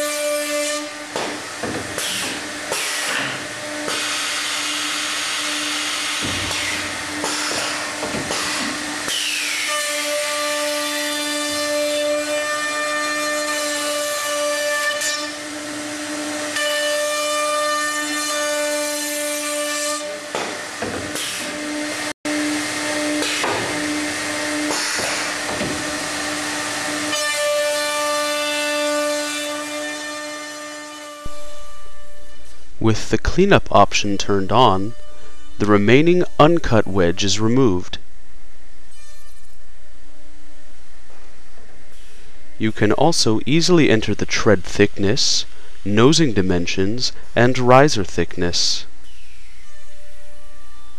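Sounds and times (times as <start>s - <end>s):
router bits cutting wood: 0.6s - 31.6s.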